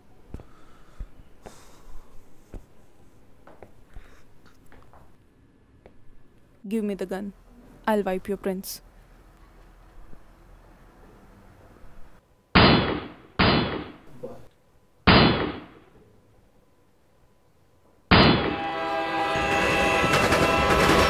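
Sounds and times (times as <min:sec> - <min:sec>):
pistol shots echoing: 0:12.6 - 0:14.0, 0:15.1 - 0:15.8.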